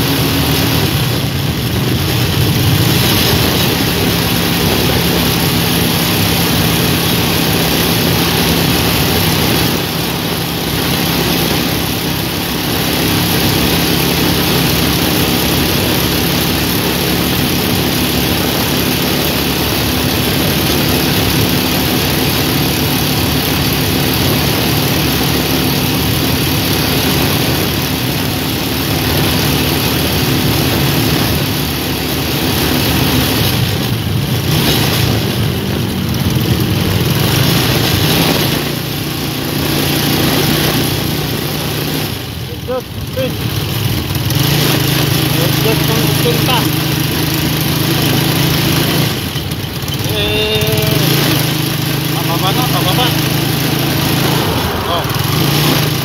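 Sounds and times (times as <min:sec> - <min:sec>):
motorcycle engine cruising: 0:00.0 - 0:56.0
wind rushing over microphone: 0:53.3 - 0:56.0.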